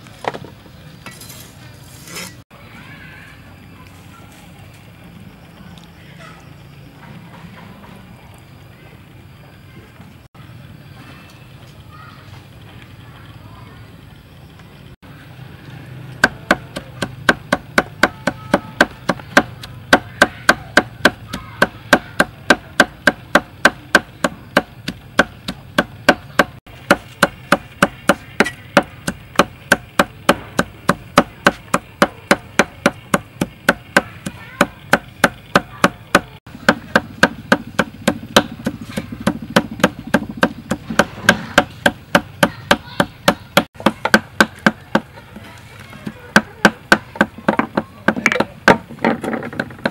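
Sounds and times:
cleaver chopping on board: 0:16.2 - 0:45.1.

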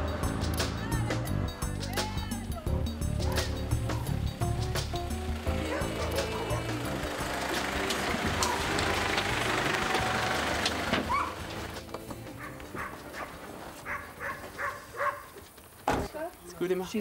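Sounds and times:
truck engine running: 0:00.0 - 0:01.3, 0:02.7 - 0:14.6
dog yapping: 0:11.0 - 0:11.4, 0:12.4 - 0:15.4.

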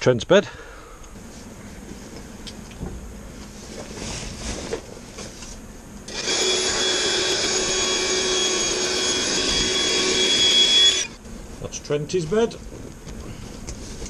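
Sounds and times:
airbed rustling: 0:01.2 - 0:05.8, 0:12.4 - 0:14.0
electric air pump whining: 0:06.0 - 0:11.2.

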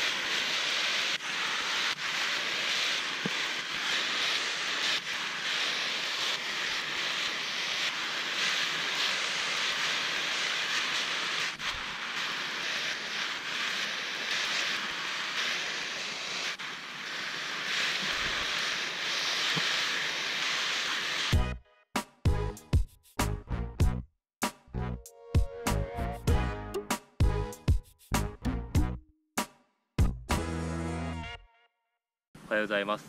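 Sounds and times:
hose spraying water on plastic: 0:00.0 - 0:21.5.

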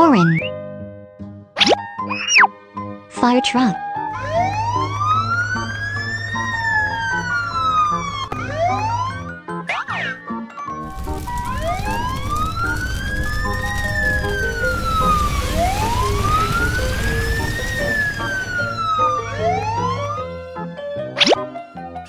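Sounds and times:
background music: 0:00.0 - 0:22.0
fire engine siren wailing: 0:04.1 - 0:09.4, 0:11.0 - 0:20.6
steady rushing hiss: 0:10.9 - 0:18.8.

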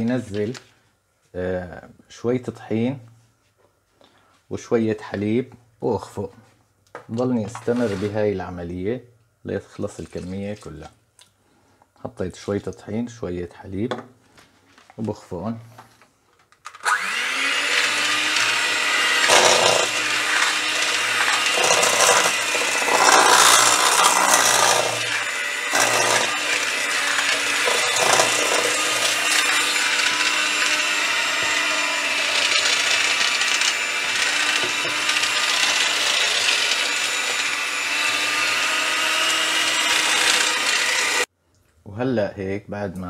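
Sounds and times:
electric hand mixer whirring: 0:16.8 - 0:41.3.

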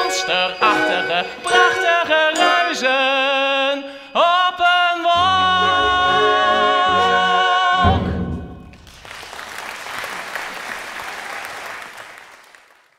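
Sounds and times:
orchestra playing closing chords: 0:00.0 - 0:02.8
audience applause: 0:08.8 - 0:12.9.

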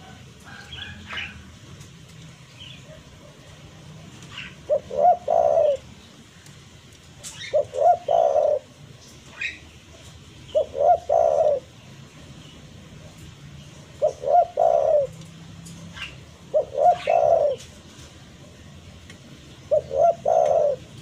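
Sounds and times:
dove cooing: 0:04.2 - 0:06.0, 0:07.3 - 0:09.6, 0:10.5 - 0:11.8, 0:13.8 - 0:15.3, 0:16.0 - 0:18.5, 0:19.6 - 0:21.0.

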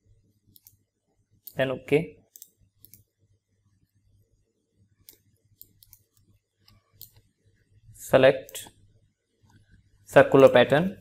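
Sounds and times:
faint mouse clicks: 0:00.5 - 0:00.8, 0:02.3 - 0:03.1, 0:05.0 - 0:07.3.

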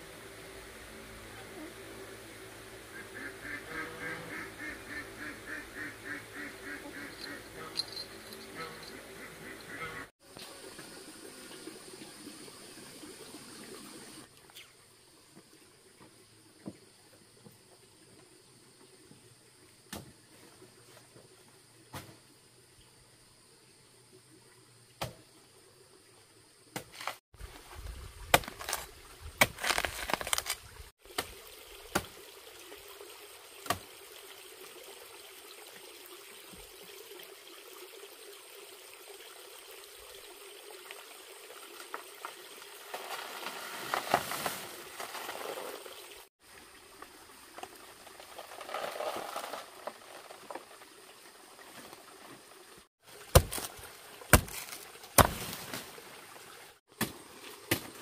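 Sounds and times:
running water hiss: 0:00.0 - 0:58.0
knife chopping plant stalk: 0:53.3 - 0:55.4.

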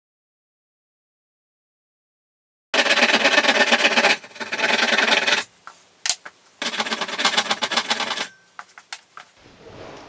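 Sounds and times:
hand saw cutting wood: 0:02.8 - 0:05.5, 0:06.6 - 0:08.4.

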